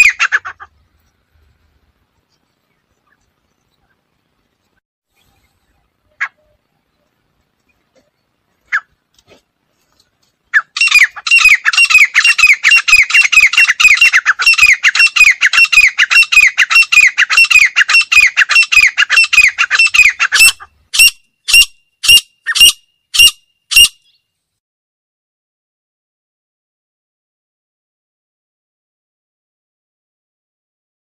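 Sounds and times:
francolin calling: 0:10.5 - 0:24.2.

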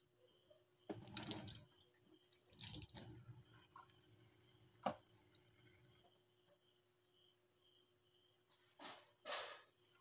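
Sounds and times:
tap water splashing into sink: 0:00.9 - 0:01.8, 0:02.4 - 0:06.1.

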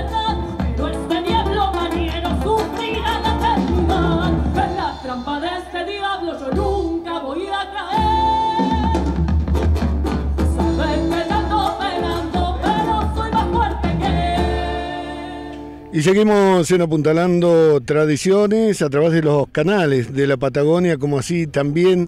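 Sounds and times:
folk song with singer: 0:00.0 - 0:16.0.

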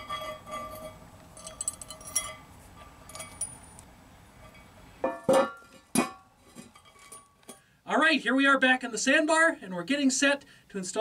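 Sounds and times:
ringing metal clanks: 0:00.0 - 0:03.8, 0:04.4 - 0:07.6
metal handle clinking on manhole cover: 0:00.0 - 0:03.9.

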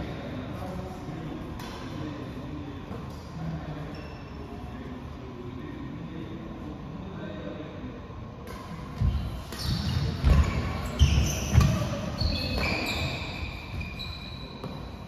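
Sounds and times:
shoes squeaking: 0:09.0 - 0:15.0.

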